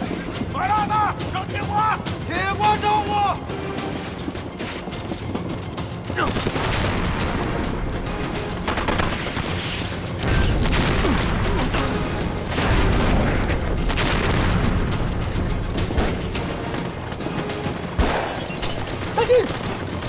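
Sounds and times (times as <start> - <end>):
dramatic film music: 0.0 - 20.0
gunshots: 6.2 - 7.7, 8.5 - 20.0.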